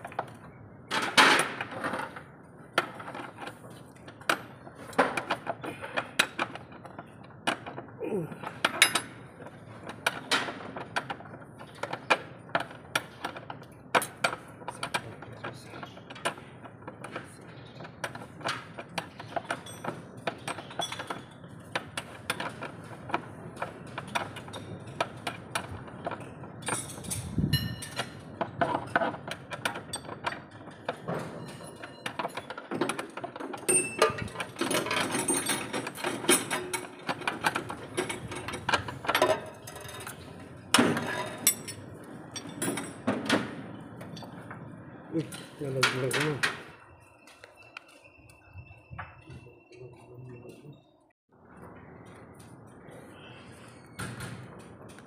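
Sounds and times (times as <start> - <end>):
hand tools clinking on steel: 26.2 - 43.1.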